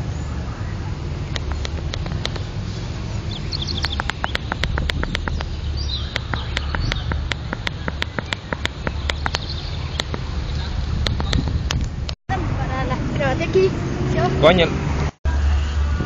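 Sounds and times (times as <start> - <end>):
steady low rumble: 0.7 - 13.4
sharp ticking: 1.3 - 2.6, 3.4 - 10.3, 11.0 - 11.9
high bird chirps: 3.2 - 11.8.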